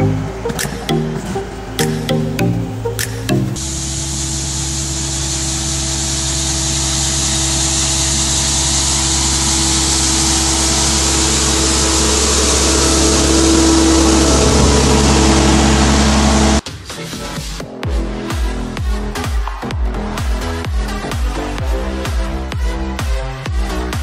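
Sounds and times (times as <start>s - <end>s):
diesel engine running: 0.0s - 16.6s.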